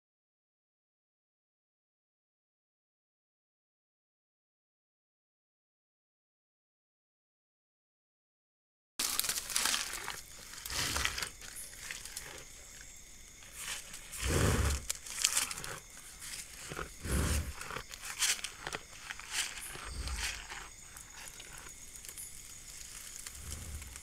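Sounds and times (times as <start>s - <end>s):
animal chewing plants: 9.0s - 24.0s.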